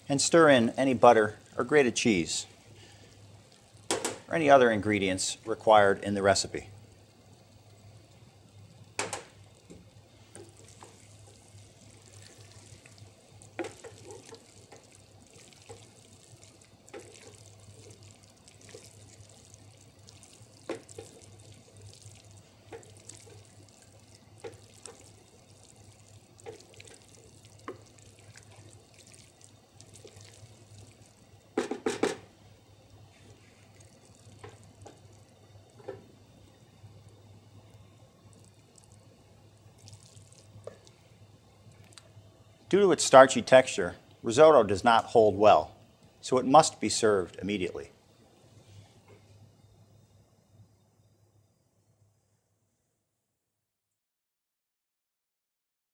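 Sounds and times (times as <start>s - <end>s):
spoon stirring risotto in saucepan: 7.2s - 42.1s.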